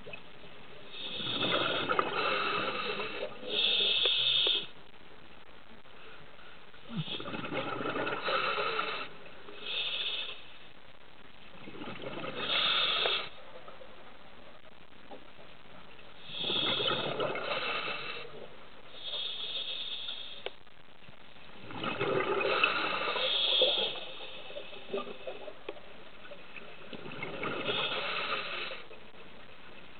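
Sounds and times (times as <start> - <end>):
regulator hiss: 0.8 - 4.9, 5.8 - 11.0, 12.2 - 13.6, 15.9 - 21.2, 22.4 - 25.5
diver bubbling exhalations: 6.8 - 9.1, 11.6 - 13.3, 21.6 - 24.0.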